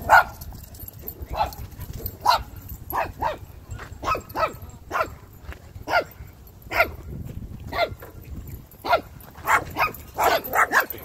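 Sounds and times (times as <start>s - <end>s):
dog barking: 0.0s - 0.4s, 1.3s - 1.6s, 2.2s - 5.2s, 5.9s - 7.0s, 7.7s - 8.0s, 8.8s - 11.0s.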